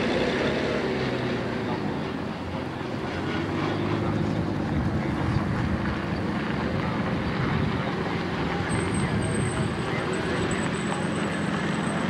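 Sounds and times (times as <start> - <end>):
vehicle engine running: 0.0 - 12.0
wind noise on microphone: 4.4 - 10.0.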